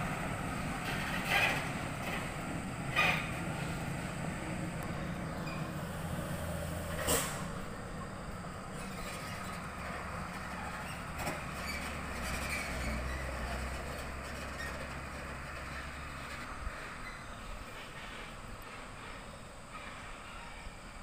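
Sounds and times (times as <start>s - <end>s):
diesel truck engine running: 0.0s - 20.0s
air hiss burst: 5.9s - 7.6s.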